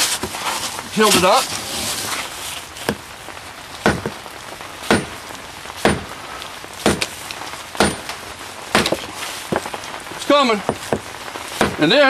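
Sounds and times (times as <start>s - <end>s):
hammer cracking on stone: 3.8s - 4.2s, 4.9s - 5.2s, 5.8s - 6.1s, 6.8s - 7.2s, 7.8s - 8.2s, 8.8s - 9.7s, 10.7s - 11.9s.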